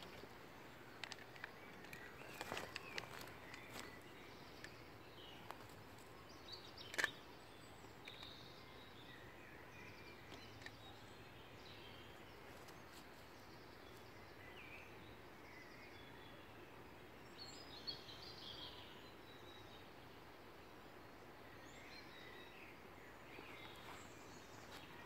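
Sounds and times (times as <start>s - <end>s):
faint birdsong: 0.0s - 25.0s
steady low hiss: 0.0s - 25.0s
sharp clicks: 6.8s - 7.2s.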